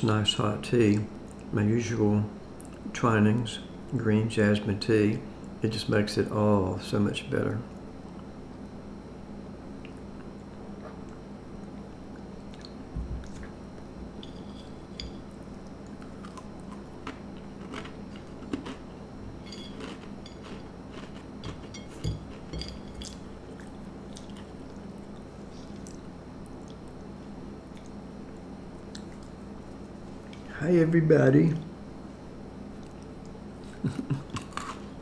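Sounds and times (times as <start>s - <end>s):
steady low hum: 0.0s - 35.0s
crackers crunching being chewed: 15.4s - 30.4s, 32.8s - 35.0s.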